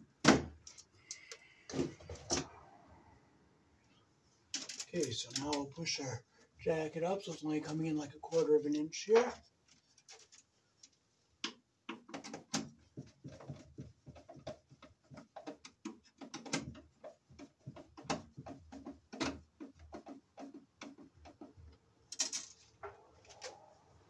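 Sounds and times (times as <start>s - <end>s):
electrical cable rustling and scraping: 4.4s - 11.2s, 12.2s - 24.0s.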